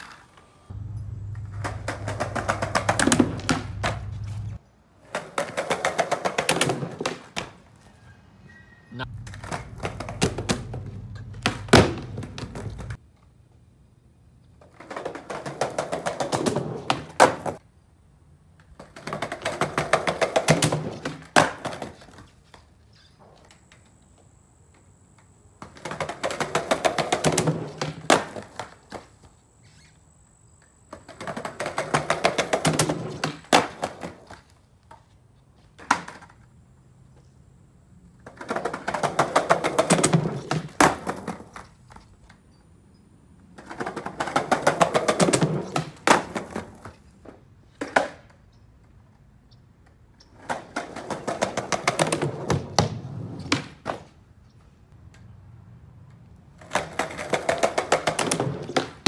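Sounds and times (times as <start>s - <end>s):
skateboard wheels rolling on pavers: 0.0s - 8.0s, 9.0s - 13.7s, 14.4s - 42.6s, 43.3s - 59.0s
skateboard slapping on landing: 1.3s - 7.7s, 9.1s - 13.0s, 14.8s - 17.6s, 18.8s - 22.3s, 25.6s - 29.1s, 30.9s - 34.5s, 38.2s - 42.0s, 43.6s - 47.0s, 50.4s - 54.2s, 56.6s - 59.0s.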